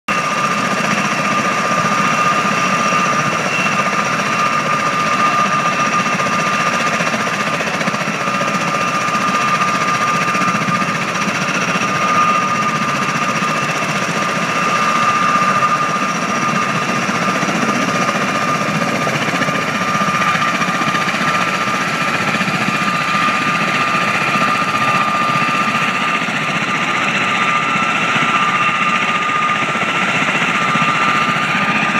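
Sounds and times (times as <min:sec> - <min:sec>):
aircraft rotors and engines running: 0:00.1 - 0:31.9.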